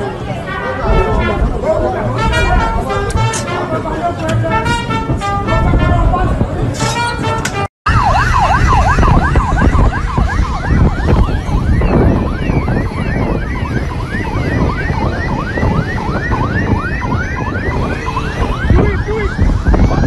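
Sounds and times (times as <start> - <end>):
vehicles rumbling on road: 0.0 - 20.0
sirens wailing: 6.9 - 20.0.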